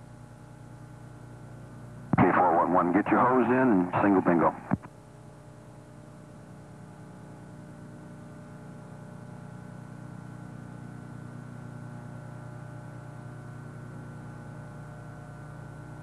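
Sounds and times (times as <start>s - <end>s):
flight deck mechanical drone: 0.6s - 4.8s.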